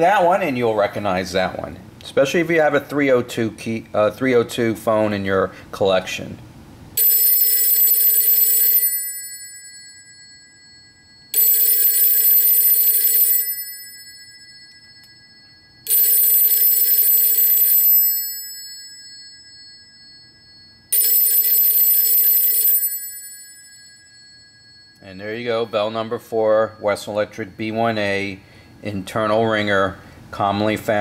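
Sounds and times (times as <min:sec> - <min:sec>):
telephone ringer ringing: 0:07.0 - 0:29.1.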